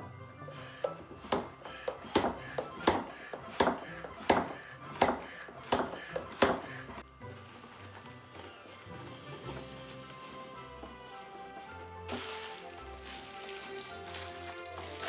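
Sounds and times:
plastic hand pump strokes: 0.5s - 7.0s.

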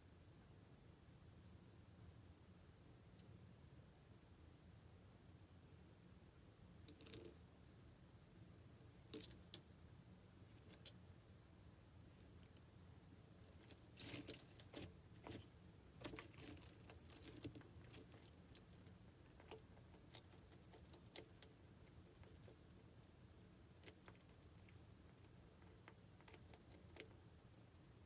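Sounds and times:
lizard crunching greens: 13.5s - 22.8s, 23.6s - 27.8s.

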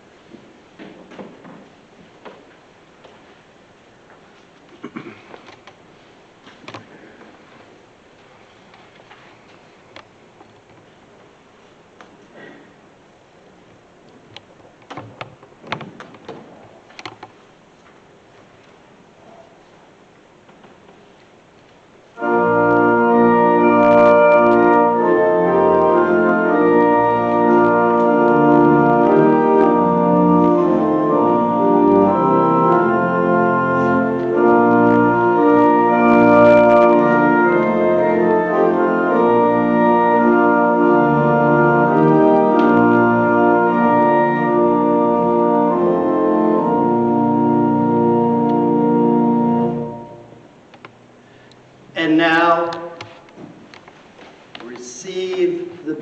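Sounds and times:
pipe organ chords: 22.1s - 50.7s.

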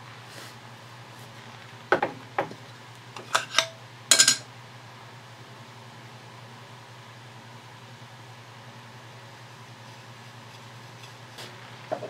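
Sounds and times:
metal lid clattering: 3.2s - 4.4s.

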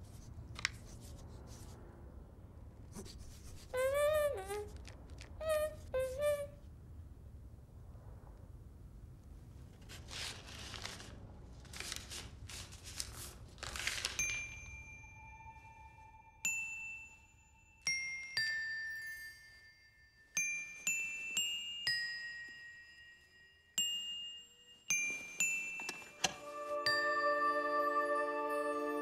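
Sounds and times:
bell-like chime notes: 14.2s - 29.0s.

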